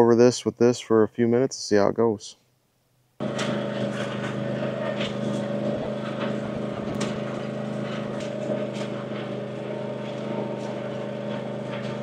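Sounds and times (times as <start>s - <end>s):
riding mower engine running: 3.2s - 12.0s.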